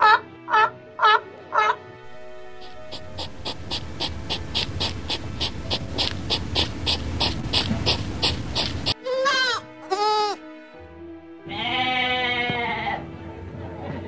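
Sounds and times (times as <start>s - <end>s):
rapid even pulsing: 2.1s - 9.0s
sheep bleating: 9.0s - 10.4s, 11.5s - 13.1s.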